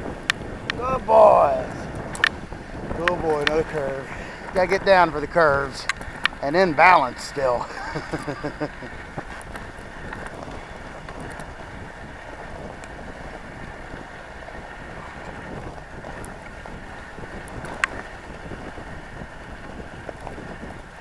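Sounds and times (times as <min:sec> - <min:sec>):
sled runners rushing on snow: 0:00.0 - 0:21.0
wind on microphone: 0:00.0 - 0:21.0.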